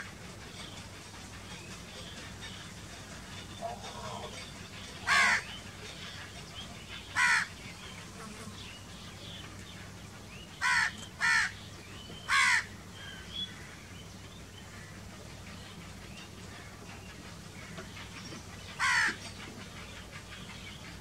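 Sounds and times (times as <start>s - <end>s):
crow cawing: 5.1s - 5.4s, 7.2s - 7.5s, 10.6s - 11.5s, 12.3s - 12.7s, 18.8s - 19.2s.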